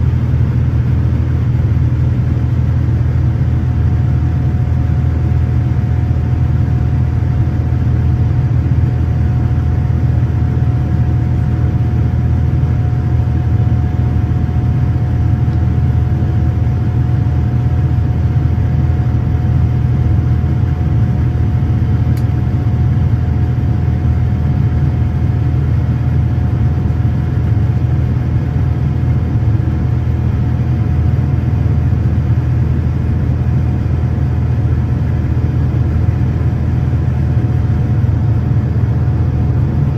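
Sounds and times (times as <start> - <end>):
jet engine low rumble: 0.0 - 39.9.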